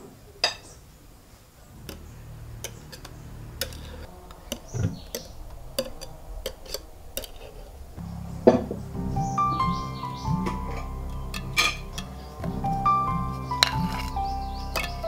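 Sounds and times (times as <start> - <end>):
faint low hum: 0.0 - 15.0
utensil clinking against mixing bowl: 1.9 - 7.4.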